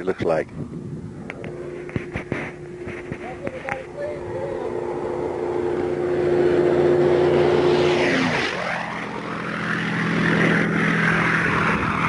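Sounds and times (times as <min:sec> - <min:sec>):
propeller plane engine flyby: 0:00.0 - 0:12.0.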